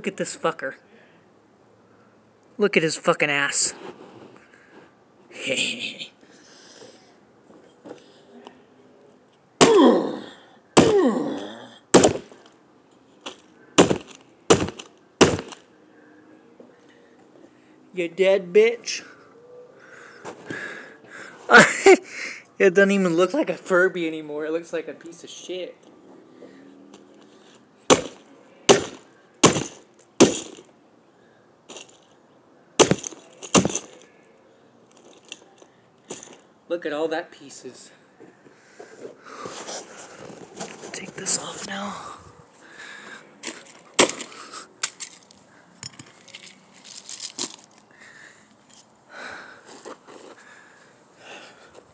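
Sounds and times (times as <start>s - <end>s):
brick slamming on toy: 12.0s - 12.4s, 13.8s - 15.6s, 27.9s - 30.7s, 32.8s - 34.0s, 43.4s - 45.0s.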